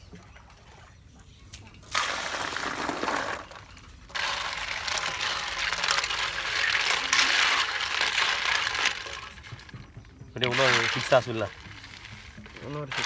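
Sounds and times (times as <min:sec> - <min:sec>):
water splashing: 0:00.0 - 0:13.0
shells clattering against steel bowl: 0:03.3 - 0:09.8.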